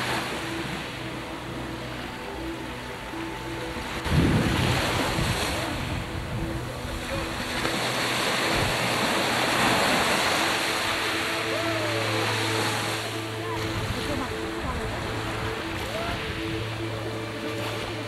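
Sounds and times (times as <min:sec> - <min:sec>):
surf breaking over rocks: 0:03.7 - 0:18.0
wind buffeting the microphone: 0:04.0 - 0:09.1.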